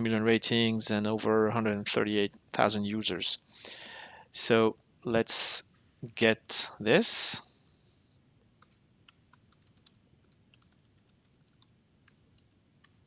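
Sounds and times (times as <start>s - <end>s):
typing on computer keyboard: 8.6s - 13.0s.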